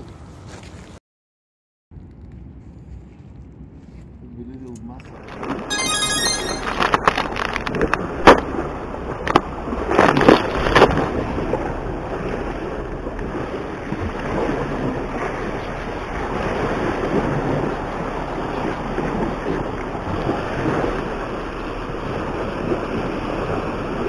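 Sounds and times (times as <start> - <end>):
waves washing against rocks: 9.6 - 24.0.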